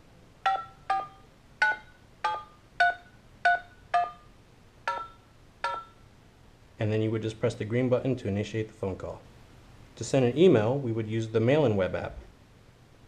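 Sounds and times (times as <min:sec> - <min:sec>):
touch-tone keypad beeps: 0:00.4 - 0:04.3, 0:04.9 - 0:06.0.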